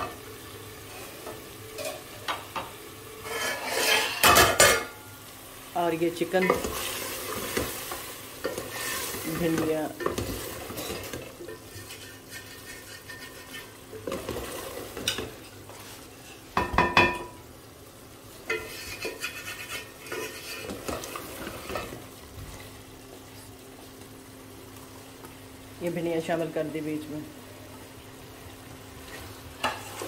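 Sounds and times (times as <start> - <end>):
wooden spoon scraping pot: 3.2 - 4.2, 8.4 - 16.5, 18.5 - 22.0.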